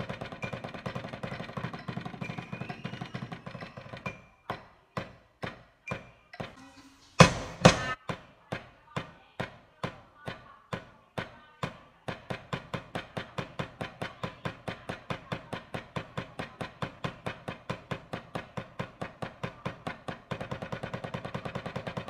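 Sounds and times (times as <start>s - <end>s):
drumsticks on practice pad: 5.9s - 8.0s.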